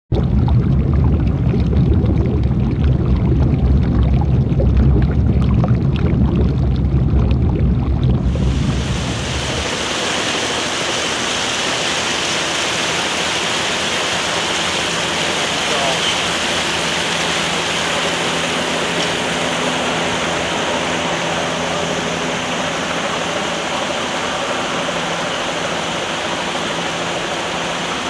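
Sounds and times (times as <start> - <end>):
loud low rumble: 0.1 - 10.8
water rushing from broken main: 0.1 - 28.0.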